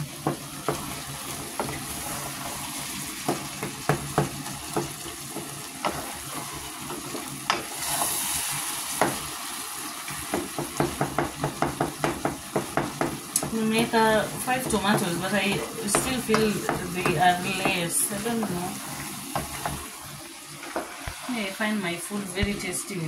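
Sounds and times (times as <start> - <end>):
stew sizzling in a pot: 0.0 - 23.0
spoon knocking against pot: 10.3 - 13.6.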